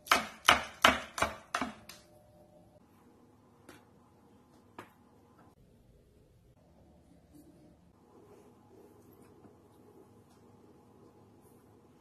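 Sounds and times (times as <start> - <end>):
knife chopping on wooden board: 0.0 - 1.8.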